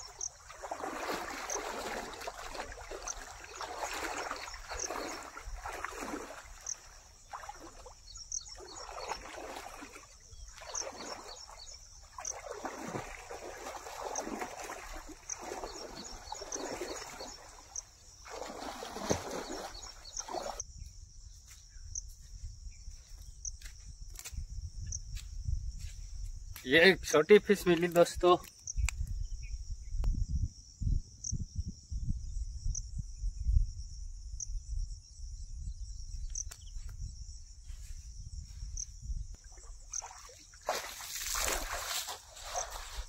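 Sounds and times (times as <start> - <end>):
muddy water splashing and sloshing: 0.0 - 20.6, 39.3 - 43.0
high chirring of insects: 0.0 - 43.0.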